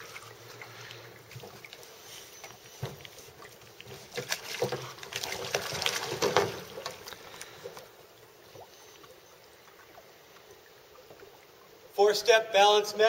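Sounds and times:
water trickling and lapping: 0:00.0 - 0:12.0
water splashing hard: 0:04.0 - 0:07.6.

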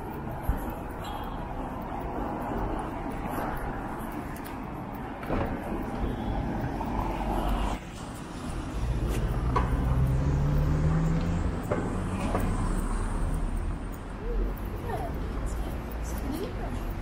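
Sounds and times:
street noise: 0:00.0 - 0:17.0
vehicle engine pulling away: 0:08.3 - 0:13.7.

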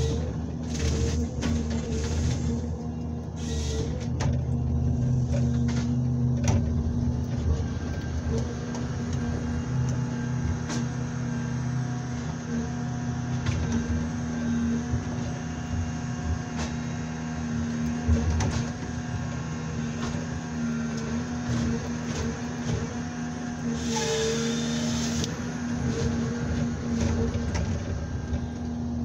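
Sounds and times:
engine and hydraulics droning: 0:00.0 - 0:29.0.

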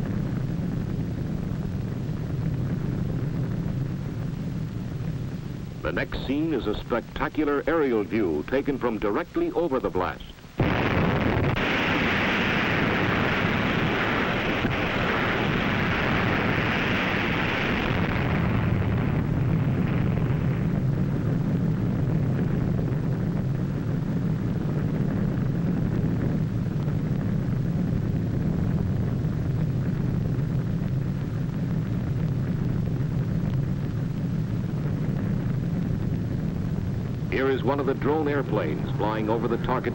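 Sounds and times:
steady low rumble: 0:00.0 - 0:39.9
bomb blast hissing rush: 0:03.8 - 0:24.1, 0:30.6 - 0:39.9.

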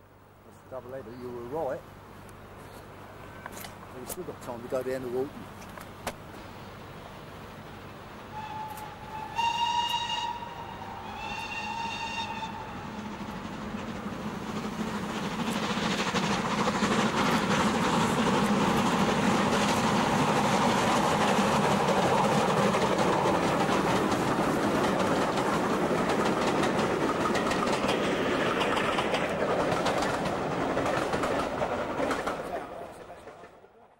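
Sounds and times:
steam locomotive exhaust beats: 0:06.2 - 0:33.2
coaches clattering over rail joints: 0:13.5 - 0:33.6.

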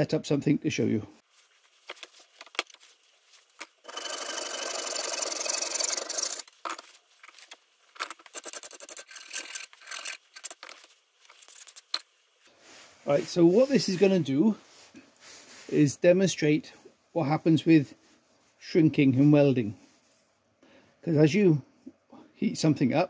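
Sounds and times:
metal scraping in a vise: 0:03.8 - 0:06.5, 0:08.3 - 0:10.8.

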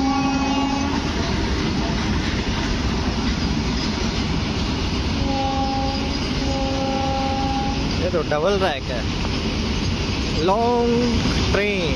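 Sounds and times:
train horn: 0:00.0 - 0:01.3, 0:05.2 - 0:07.9
freight train wheels rumbling: 0:00.0 - 0:11.9.

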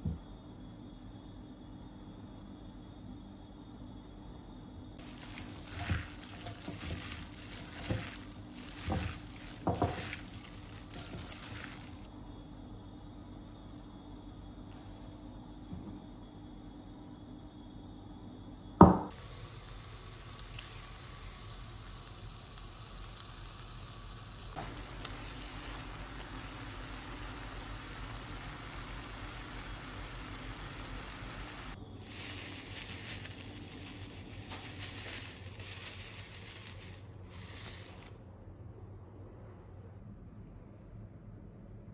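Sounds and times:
meat sizzling in a frying pan: 0:05.0 - 0:12.1, 0:19.1 - 0:37.9.

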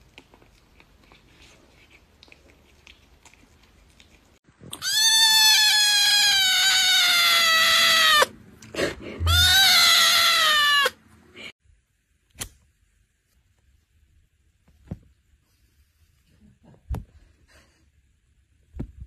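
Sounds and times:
kitten meowing: 0:04.8 - 0:08.3, 0:09.2 - 0:11.0.

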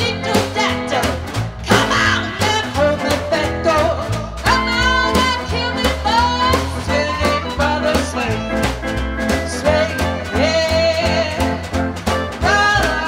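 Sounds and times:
woman singing: 0:00.0 - 0:08.8, 0:09.4 - 0:13.0
acoustic guitar: 0:00.0 - 0:13.0
upright bass: 0:00.0 - 0:13.0.

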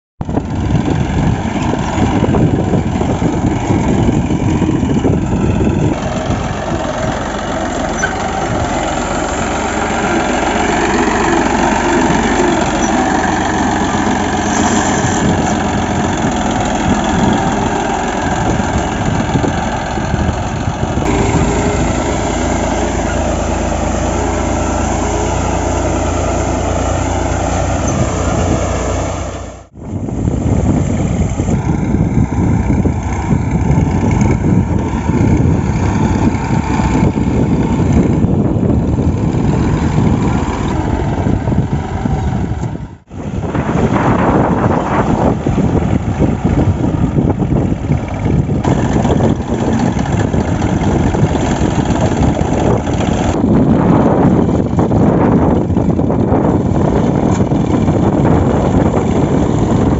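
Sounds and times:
tractor diesel engine under load: 0:00.2 - 0:59.9.

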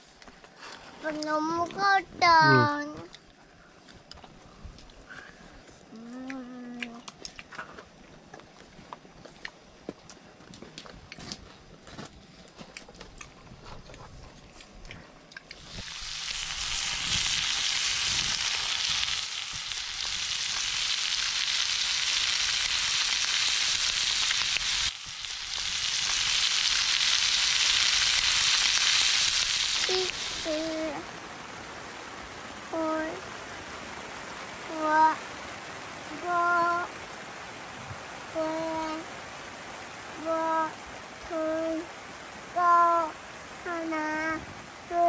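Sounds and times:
meat sizzling in a pan: 0:15.6 - 0:31.1.

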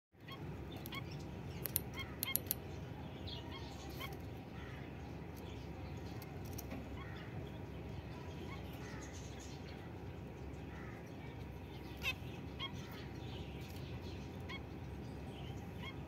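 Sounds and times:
sharp clicks: 0:01.6 - 0:02.6
finches honking calls: 0:10.6 - 0:16.0.

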